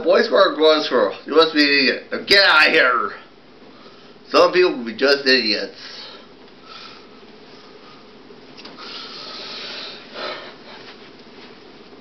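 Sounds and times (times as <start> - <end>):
rustling of someone moving: 9.6 - 12.0.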